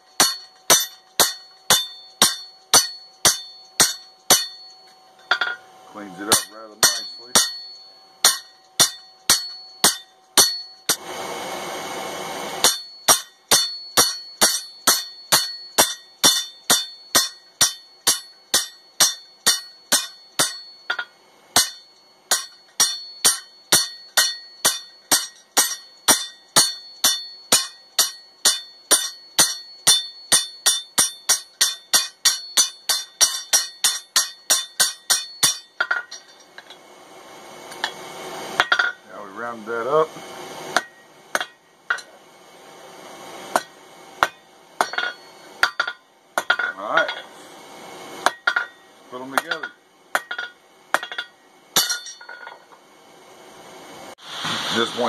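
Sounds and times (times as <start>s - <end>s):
hammer ringing on anvil: 0.0s - 11.0s, 12.6s - 36.8s, 38.6s - 39.0s, 40.8s - 42.1s, 43.5s - 47.3s, 48.2s - 52.6s
short burst of hissing: 54.2s - 55.0s.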